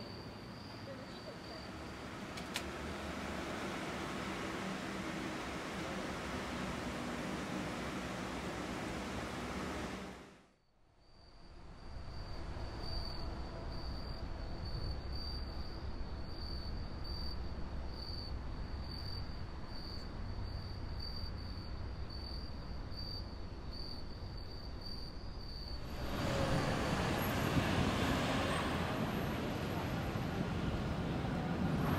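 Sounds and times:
cricket chirping: 0:00.0 - 0:03.2, 0:10.6 - 0:31.5
wind hiss: 0:25.8 - 0:31.9.

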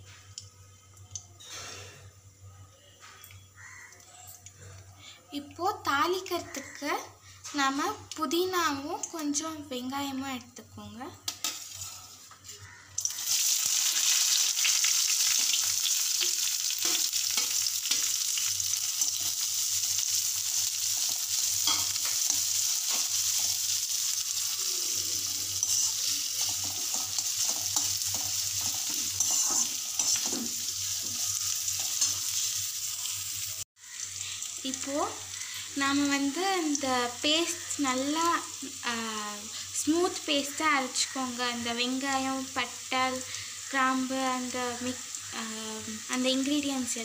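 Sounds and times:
onions sizzling in oil: 0:05.5 - 0:47.0
metal ladle scraping and tapping: 0:25.6 - 0:31.2.

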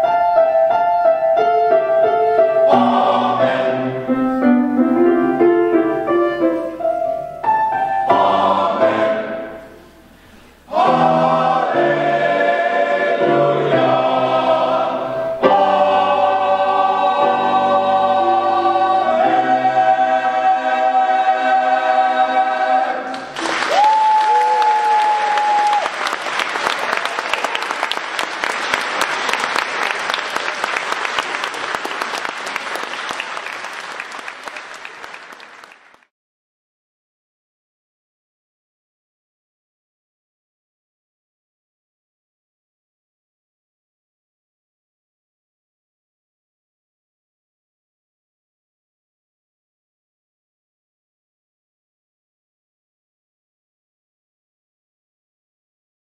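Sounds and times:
male choir singing: 0:02.5 - 0:04.2, 0:08.1 - 0:09.7, 0:10.7 - 0:23.3
audience applause: 0:23.1 - 0:36.1.

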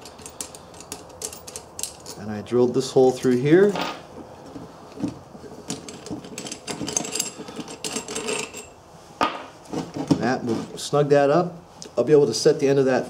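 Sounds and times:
metal parts clicking and scraping: 0:00.0 - 0:08.8.

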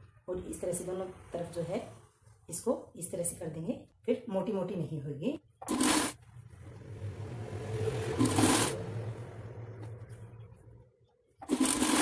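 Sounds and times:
sewing machine stitching: 0:05.6 - 0:06.2, 0:08.2 - 0:08.8, 0:11.4 - 0:12.0.

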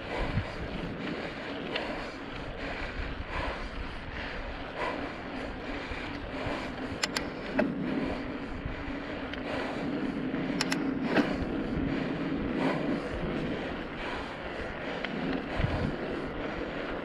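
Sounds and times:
constant low hum: 0:00.0 - 0:17.0
road and wind noise: 0:00.0 - 0:17.0
sharp clicks or rattles: 0:06.1 - 0:07.8, 0:10.4 - 0:11.4.

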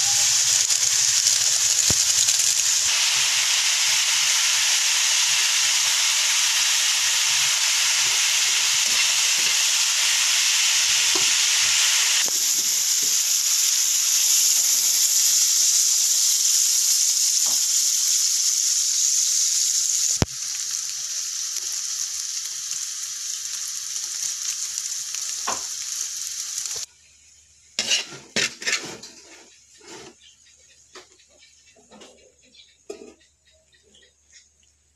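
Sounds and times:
food sizzling in hot oil: 0:00.0 - 0:30.4
spatula clicking and scraping pan: 0:27.8 - 0:30.3.

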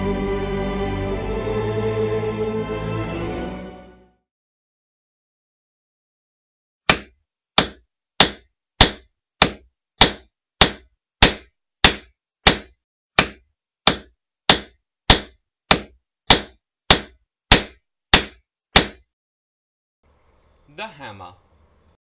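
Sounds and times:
hammer striking nails into wood: 0:06.9 - 0:19.0.

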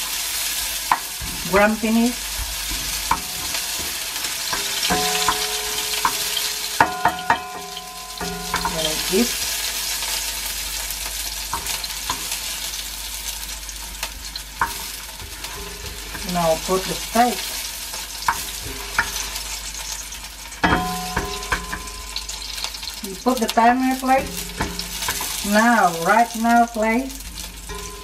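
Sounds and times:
onion sizzling in hot oil: 0:00.0 - 0:28.0
metal tongs clicking on pan: 0:02.7 - 0:09.4, 0:18.2 - 0:19.3, 0:20.6 - 0:26.7.

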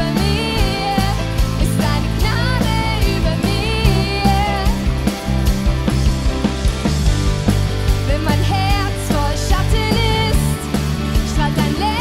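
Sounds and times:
bass guitar: 0:00.0 - 0:12.0
electric guitars: 0:00.0 - 0:12.0
drum hits: 0:01.4 - 0:08.5.

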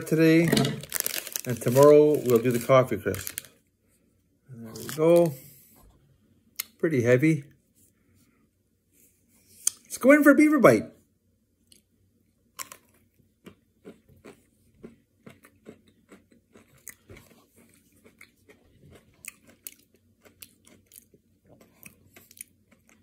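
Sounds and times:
ice cream bar crunching: 0:00.8 - 0:03.6.

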